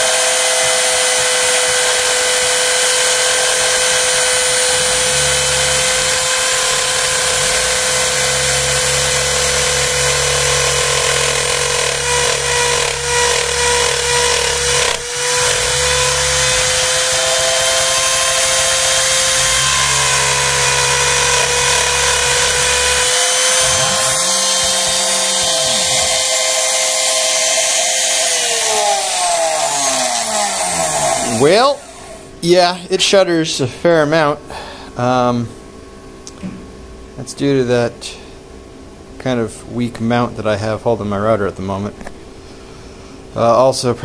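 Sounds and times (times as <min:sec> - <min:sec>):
router motor high whine: 0:00.0 - 0:32.4
stepper motors humming: 0:00.0 - 0:32.8.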